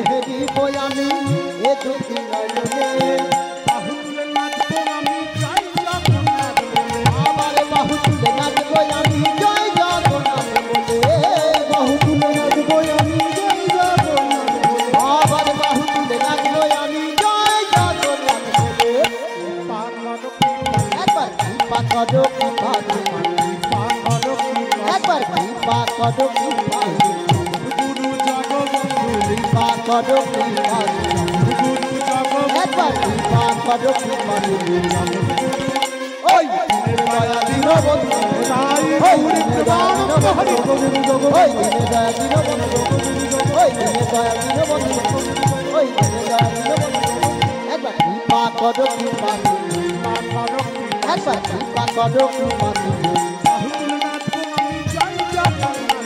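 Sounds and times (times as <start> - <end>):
held melody with sliding notes: 0.0 - 56.0
sustained melody notes: 26.2 - 53.4.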